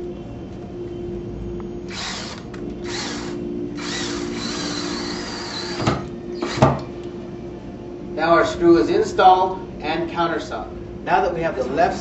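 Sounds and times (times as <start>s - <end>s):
cordless drill driving screw: 1.9s - 6.6s.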